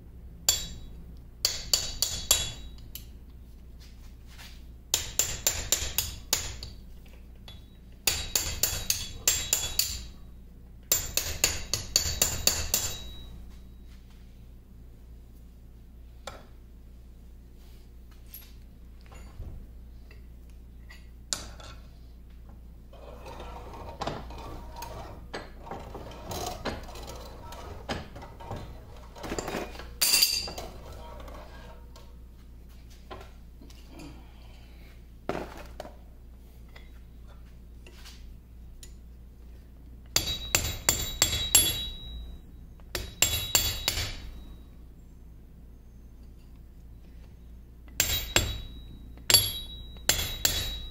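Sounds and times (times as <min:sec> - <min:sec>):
hammer tapping steel punch: 0:00.5 - 0:03.1, 0:04.9 - 0:06.8, 0:07.4 - 0:10.1, 0:10.9 - 0:13.3, 0:40.1 - 0:42.2, 0:42.9 - 0:44.5, 0:47.9 - 0:50.9
metal parts scraping: 0:22.9 - 0:32.0.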